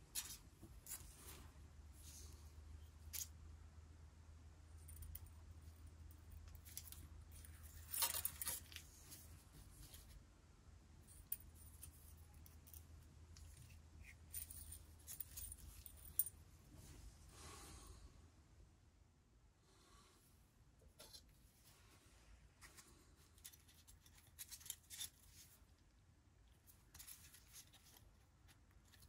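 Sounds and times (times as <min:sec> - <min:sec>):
low steady hum: 0:00.0 - 0:29.0
wire scraping and rustling: 0:06.4 - 0:10.2, 0:22.6 - 0:25.8, 0:26.6 - 0:29.0.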